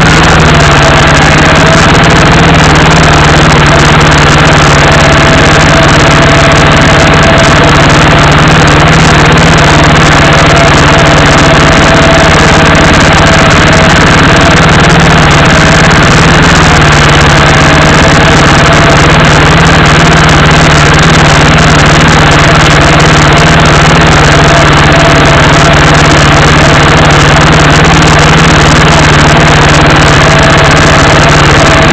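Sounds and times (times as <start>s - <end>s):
vehicle engine idling: 0.0s - 31.9s.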